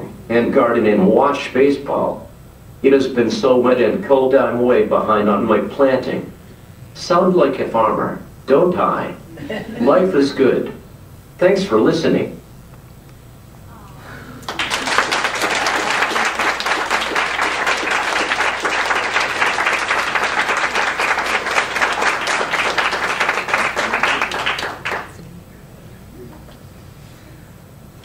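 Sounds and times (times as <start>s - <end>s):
audience applauding: 14.4s - 25.2s.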